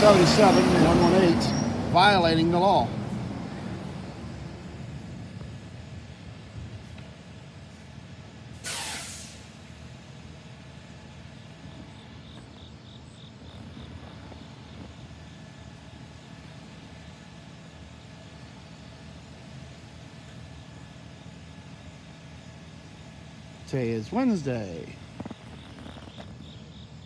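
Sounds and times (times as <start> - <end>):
engines idling: 0.0 - 27.0
air brakes hissing: 7.8 - 9.6.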